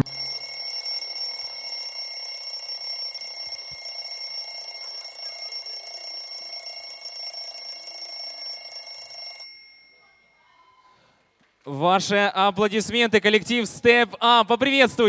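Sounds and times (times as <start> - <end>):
alarm clock ringing: 0.0 - 10.3.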